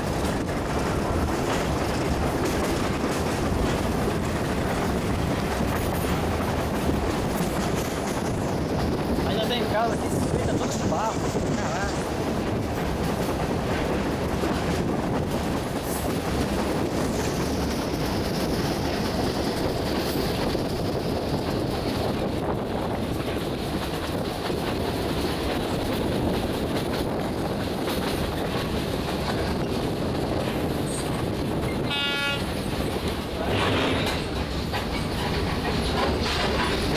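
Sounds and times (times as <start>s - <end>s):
train wheels rumbling on rail: 0.0s - 36.9s
wheel clacks: 32.5s - 36.9s.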